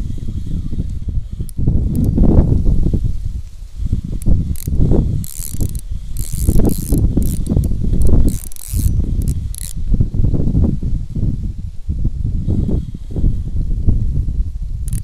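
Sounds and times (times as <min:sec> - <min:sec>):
wind rumbling on microphone: 0:00.0 - 0:15.0
fishing reel whirring and clicking: 0:00.2 - 0:02.4, 0:03.9 - 0:10.0.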